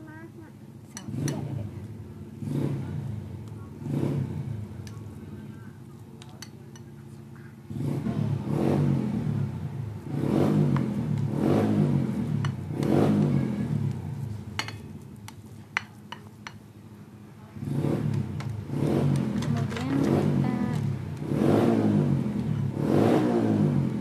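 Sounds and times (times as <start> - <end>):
engine revving: 1.1 - 4.8, 7.6 - 14.4, 17.5 - 24.0.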